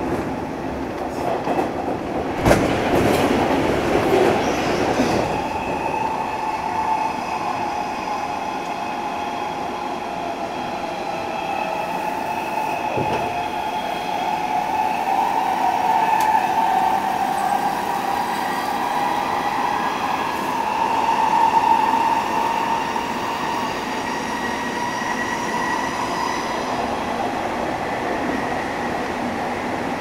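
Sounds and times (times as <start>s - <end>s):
train wheels rumbling on rail: 0.0s - 30.0s.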